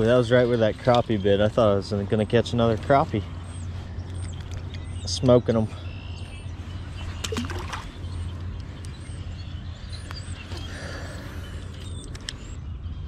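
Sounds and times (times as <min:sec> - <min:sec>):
low outdoor rumble: 0:00.0 - 0:13.0
small birds chirping: 0:00.0 - 0:13.0
sharp clicks: 0:00.1 - 0:01.6, 0:02.4 - 0:05.4, 0:07.2 - 0:09.2, 0:09.9 - 0:12.6
fish splashing into water: 0:07.2 - 0:07.9.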